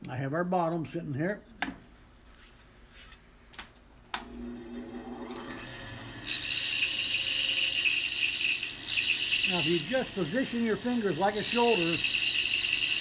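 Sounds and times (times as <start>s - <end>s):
bandsaw motor humming: 4.2s - 13.0s
saw blade cutting wood: 6.2s - 13.0s.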